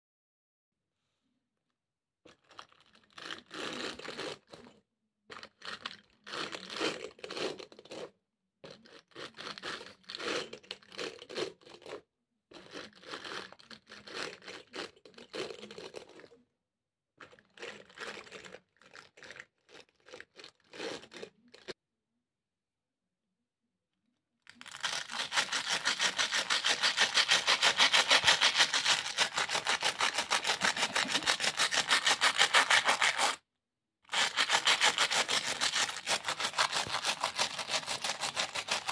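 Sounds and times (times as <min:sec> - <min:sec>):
wire brush scraping fabric shoes: 0:24.8 - 0:33.4, 0:34.1 - 0:38.9.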